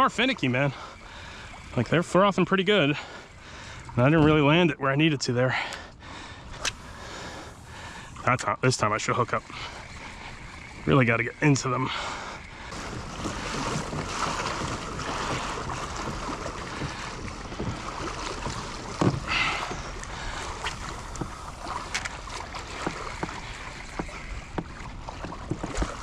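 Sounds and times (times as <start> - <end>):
water lapping on kayak hull: 0.0 - 26.0
small splashes and clicks: 6.5 - 6.9, 12.2 - 26.0.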